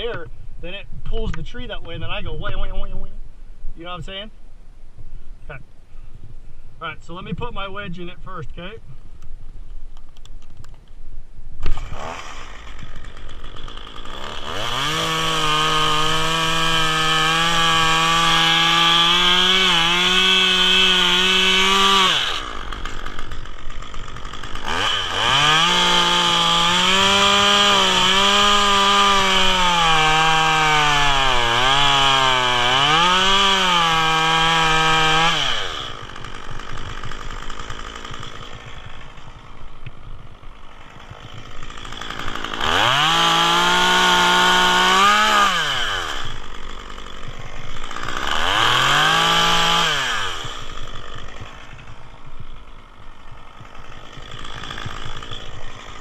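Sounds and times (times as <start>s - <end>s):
chainsaw cutting wood: 11.6s - 56.0s
chainsaw idling: 11.6s - 56.0s.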